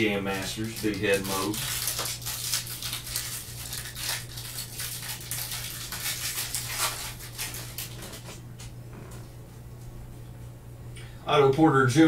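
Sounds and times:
foil wrapper tearing and crinkling: 0.1s - 8.4s.

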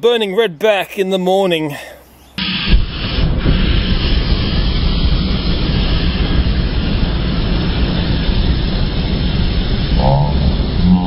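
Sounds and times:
flame torch blasting: 2.4s - 11.0s.

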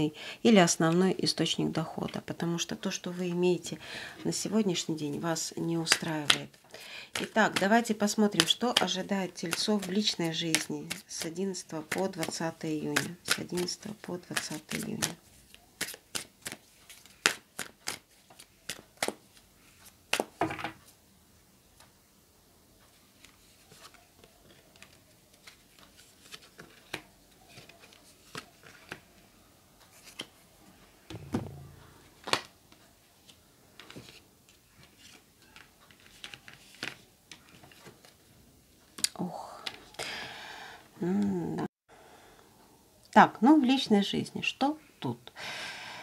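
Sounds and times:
cards shuffling: 8.3s - 20.4s, 23.2s - 29.1s, 29.9s - 30.3s, 34.8s - 38.2s
cards dealt onto fabric: 11.9s - 19.2s
dull thump: 31.1s - 32.1s.

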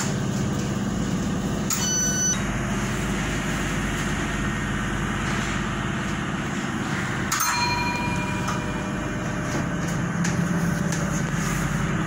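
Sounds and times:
train traction hum: 0.0s - 12.0s
rumble of wheels on rails: 3.8s - 12.0s.

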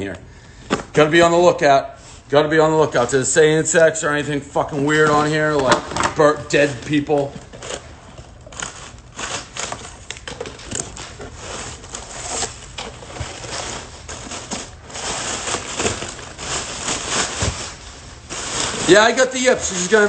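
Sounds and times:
cardboard packaging rustling: 4.6s - 20.0s.

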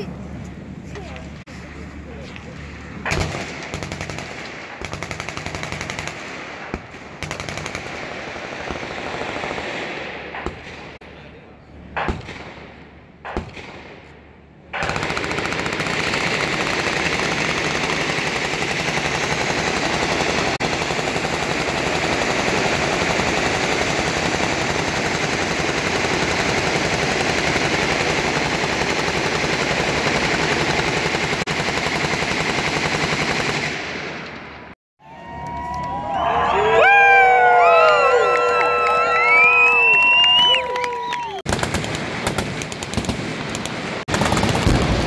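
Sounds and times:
machine-gun fire: 3.0s - 11.0s, 12.0s - 14.1s, 14.7s - 34.4s, 41.5s - 45.0s.

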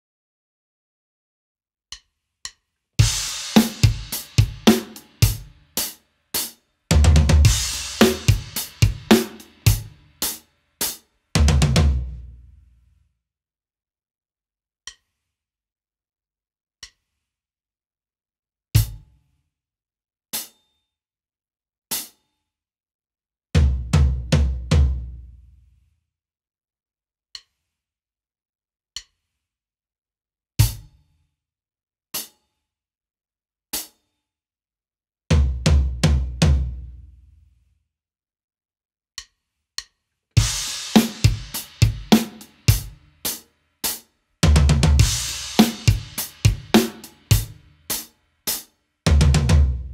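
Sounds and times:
drum kit groove: 3.0s - 12.2s, 18.8s - 19.2s, 30.6s - 31.0s, 35.3s - 36.8s, 40.4s - 49.9s.

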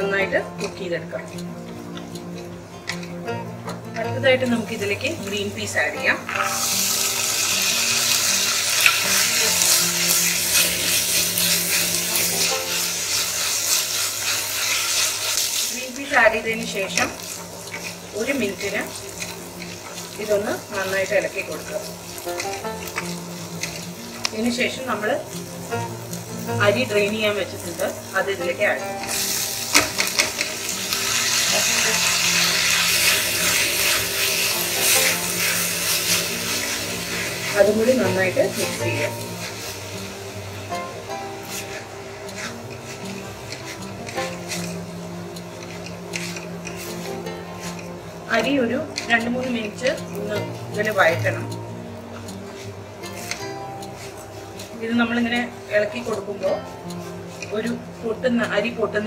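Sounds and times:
peas sizzling in hot oil: 0.0s - 59.0s
wooden spatula stirring and scraping: 9.0s - 15.8s, 16.5s - 28.0s, 41.2s - 51.0s, 52.1s - 58.2s
wooden spoon stirring: 41.5s - 44.8s.

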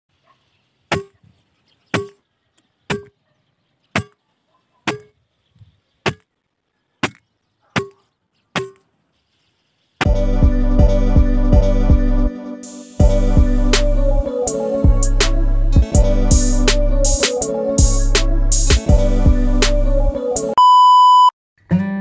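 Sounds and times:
music: 10.0s - 20.6s, 21.6s - 22.0s.

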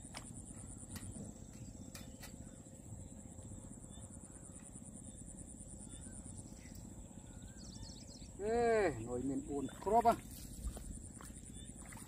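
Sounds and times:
bird chirps: 3.4s - 10.2s.

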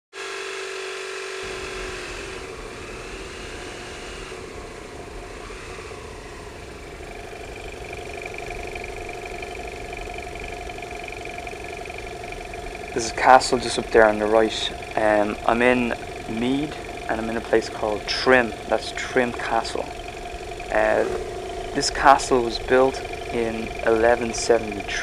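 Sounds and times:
motorcycle engine running: 5.6s - 25.0s.

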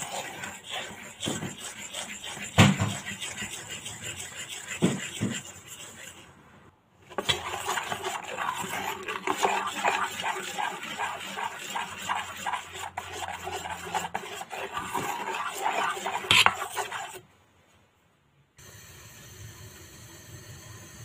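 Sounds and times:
spoon scraping batter in bowl: 0.0s - 6.4s, 7.1s - 17.2s.

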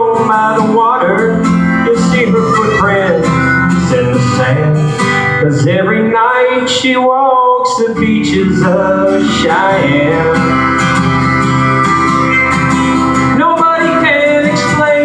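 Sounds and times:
person singing: 0.0s - 10.8s, 12.3s - 15.0s
acoustic guitar strumming: 0.0s - 15.0s.

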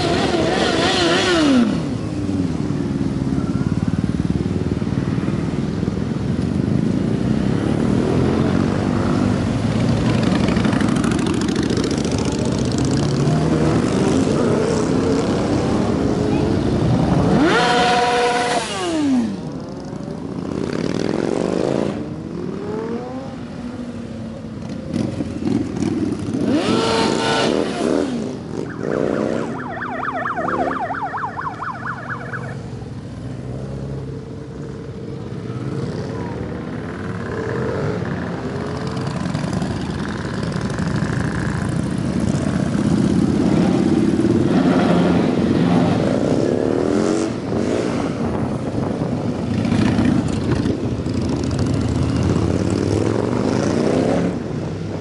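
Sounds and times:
motorcycles riding past revving: 6.2s - 55.0s.

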